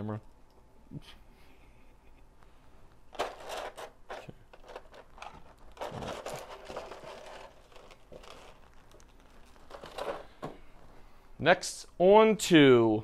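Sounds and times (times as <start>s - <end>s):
plastic packaging crinkling: 3.2s - 10.5s.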